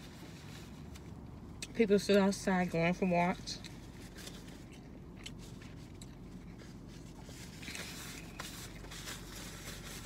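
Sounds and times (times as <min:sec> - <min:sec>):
food wrapper rustling: 0:03.7 - 0:10.0.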